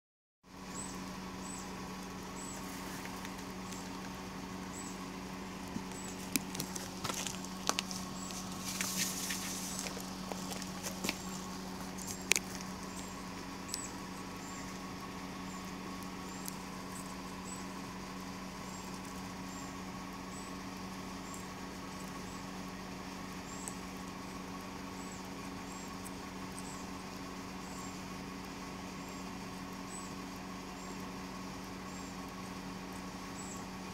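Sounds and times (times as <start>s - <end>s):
steady low hum: 0.5s - 33.9s
faint high chirp: 0.7s - 1.8s
clicks and paper rustles: 2.7s - 4.2s, 5.7s - 13.0s.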